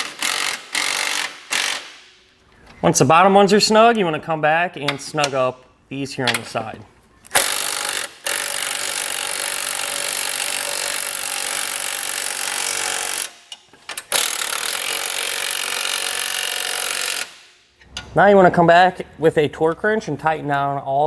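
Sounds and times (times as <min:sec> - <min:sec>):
cordless impact wrench: 0:00.0 - 0:02.0, 0:07.3 - 0:17.5.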